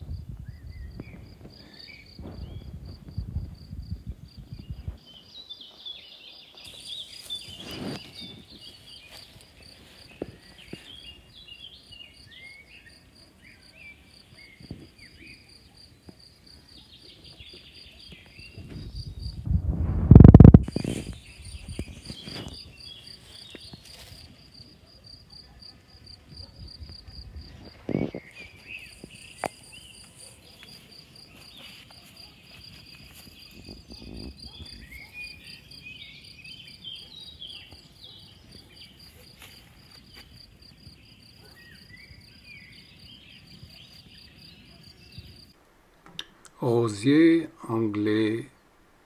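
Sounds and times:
cricket chirping: 0:00.0 - 0:19.6, 0:20.2 - 0:45.6
short twittering calls: 0:04.6 - 0:19.4, 0:20.6 - 0:24.6, 0:27.4 - 0:45.6.

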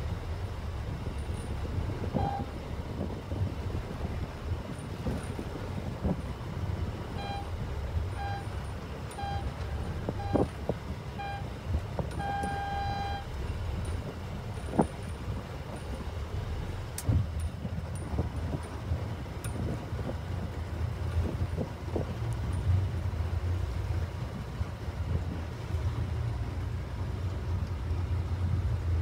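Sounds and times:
wind noise: 0:00.8 - 0:07.5, 0:09.7 - 0:11.0, 0:13.8 - 0:22.3
electronic countdown beeps: 0:07.2 - 0:07.5, 0:08.2 - 0:08.5, 0:09.2 - 0:09.5, 0:10.2 - 0:10.5, 0:11.2 - 0:11.4, 0:12.2 - 0:13.3.

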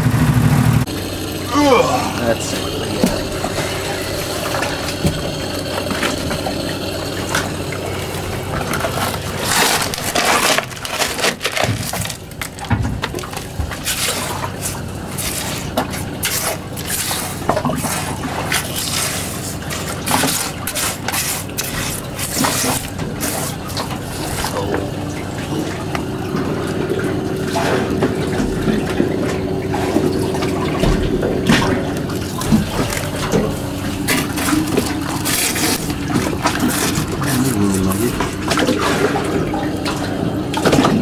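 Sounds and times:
steady motor hum: 0:00.0 - 0:41.0
wet gravel scraped in metal box: 0:08.9 - 0:12.0.

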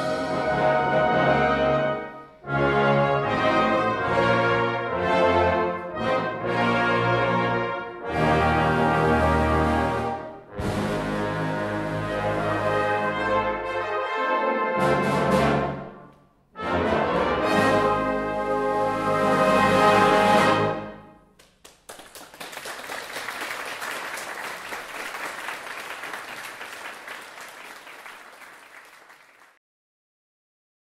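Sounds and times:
brass band playing: 0:00.0 - 0:21.2
audience applause: 0:21.4 - 0:29.6.

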